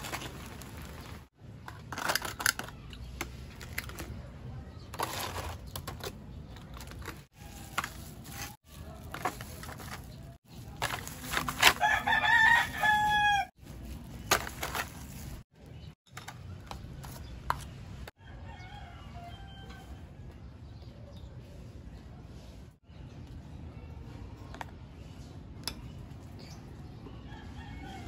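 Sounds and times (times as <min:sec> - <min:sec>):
rooster crowing: 0:11.8 - 0:13.5, 0:18.2 - 0:19.9.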